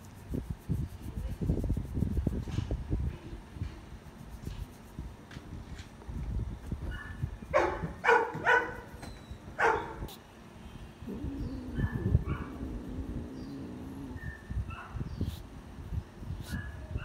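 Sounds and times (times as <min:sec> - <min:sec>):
dog barking: 0:06.9 - 0:09.0, 0:09.6 - 0:10.1, 0:11.4 - 0:12.7, 0:14.0 - 0:15.1, 0:16.4 - 0:17.0.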